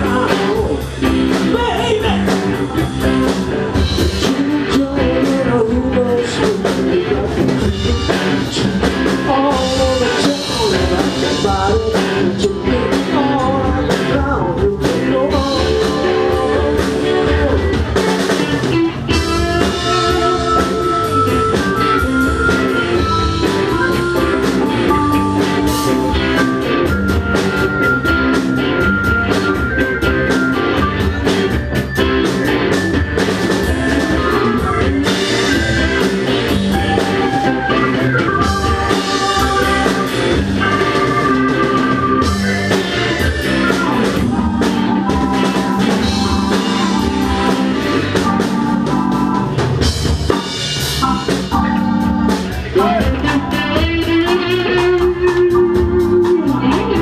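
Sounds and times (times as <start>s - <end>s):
bass guitar: 0.0s - 57.0s
drum kit: 0.0s - 57.0s
electric guitars: 0.0s - 57.0s
keyboards: 0.0s - 57.0s
lead guitar line bending in pitch: 15.3s - 57.0s.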